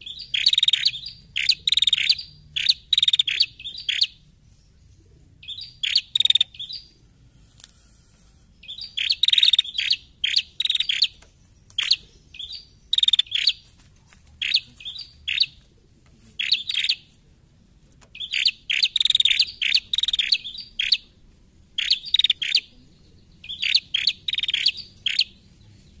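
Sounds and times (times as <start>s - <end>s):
bird chirping in rapid bursts: 0.0s - 7.0s, 8.6s - 13.6s, 14.4s - 15.6s, 16.4s - 17.1s, 18.1s - 21.1s, 21.8s - 22.7s, 23.3s - 25.4s.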